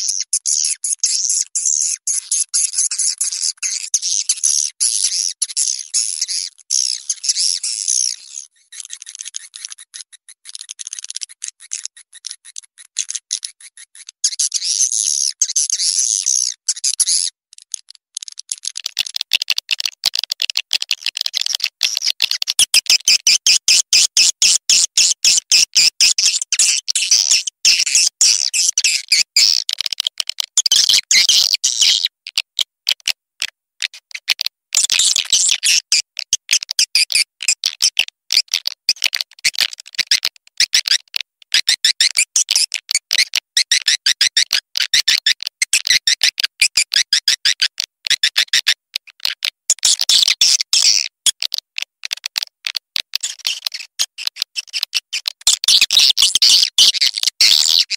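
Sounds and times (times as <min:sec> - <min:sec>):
swiftlets twittering and chirping: 0:00.0 - 0:17.3.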